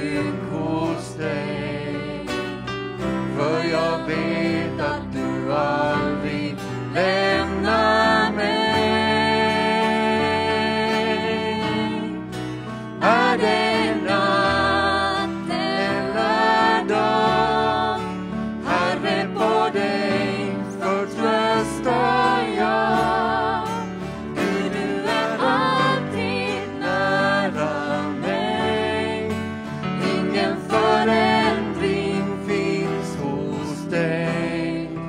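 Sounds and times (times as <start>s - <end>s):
bass guitar: 0.0s - 20.4s
acoustic guitar: 0.0s - 35.0s
electric keyboard: 0.0s - 35.0s
person singing with vibrato: 3.4s - 12.2s, 13.0s - 35.0s.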